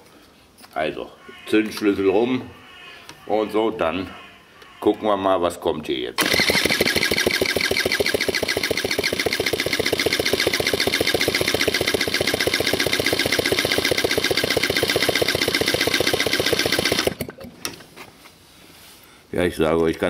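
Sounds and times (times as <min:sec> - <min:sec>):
electric starter cranking engine: 0:06.2 - 0:17.5.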